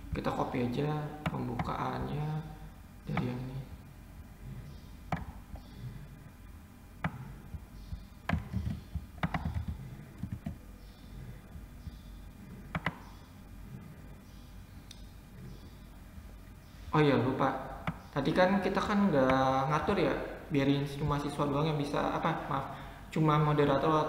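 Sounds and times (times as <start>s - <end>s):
mouse and keyboard clicks: 7.0s - 10.6s, 12.6s - 13.2s.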